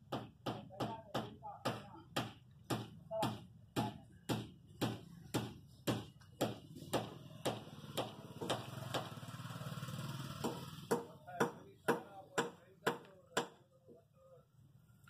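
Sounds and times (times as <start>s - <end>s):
engine hum: 7.6s - 10.9s.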